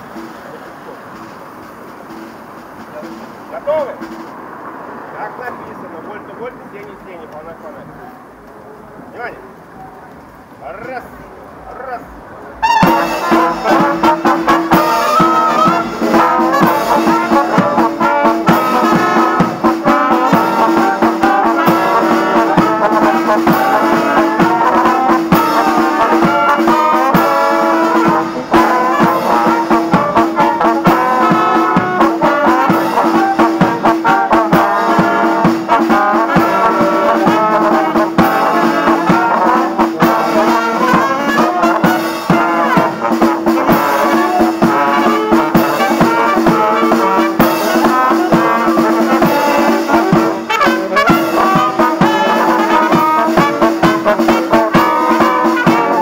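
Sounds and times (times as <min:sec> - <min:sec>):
drum beat: 0:00.0 - 0:04.9, 0:12.6 - 0:56.0
wind band playing: 0:00.0 - 0:56.0.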